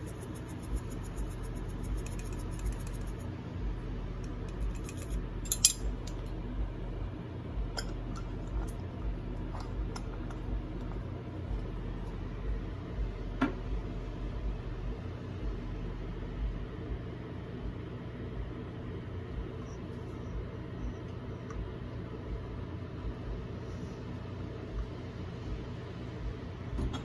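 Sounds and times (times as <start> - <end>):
steady low hum: 0.0 - 27.0
kitchenware clinking on metal bowl: 4.6 - 5.9.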